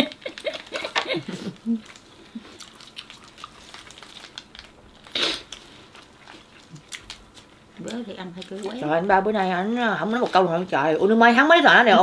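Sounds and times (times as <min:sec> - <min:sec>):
wrapper crinkles and clicks: 0:00.0 - 0:05.6.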